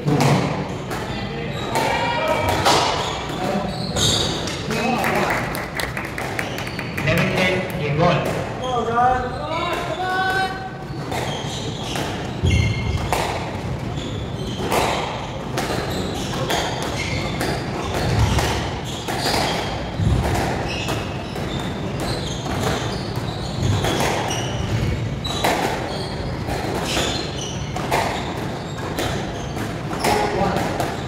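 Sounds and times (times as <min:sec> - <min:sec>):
squash ball hitting rackets and walls: 0:00.0 - 0:04.9, 0:06.0 - 0:08.6, 0:09.7 - 0:31.0
shoes squeaking on wooden floor: 0:02.8 - 0:04.6, 0:08.6 - 0:31.0.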